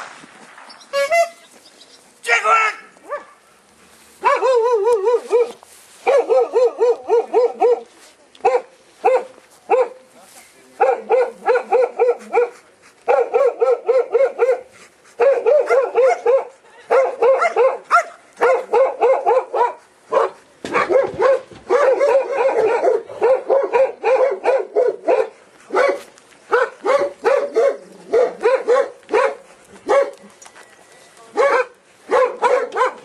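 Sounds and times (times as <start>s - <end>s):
dog barking fast: 6.1s - 7.8s, 10.8s - 30.1s, 31.4s - 33.0s.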